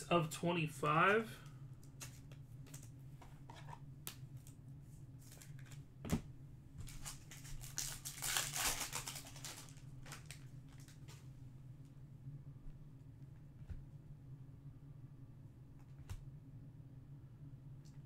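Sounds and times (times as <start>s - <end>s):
foil pack tearing and crinkling: 6.9s - 11.0s.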